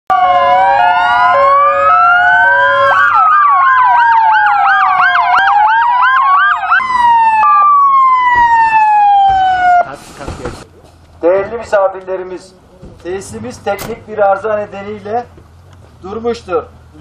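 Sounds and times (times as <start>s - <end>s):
hi-lo siren tone: 0.1s - 9.9s
siren wailing: 0.1s - 9.9s
siren yelp: 0.1s - 9.9s.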